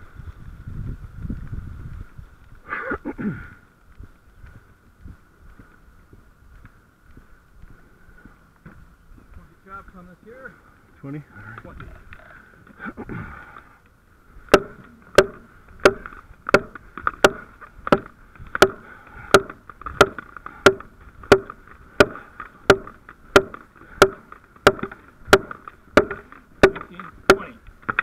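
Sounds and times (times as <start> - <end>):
tool striking wooden timber: 14.5 - 28.0.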